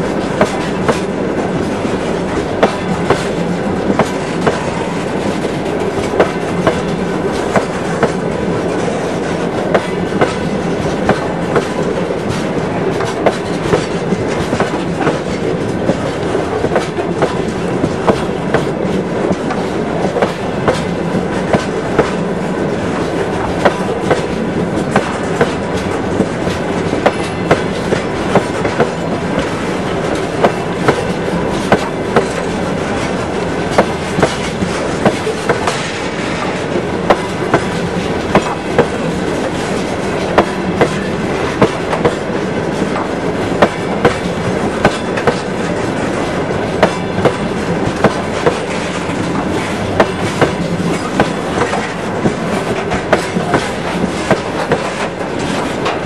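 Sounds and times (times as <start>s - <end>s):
freight train rolling past: 0.0s - 56.0s
wheels clacking over rail joints: 0.0s - 56.0s.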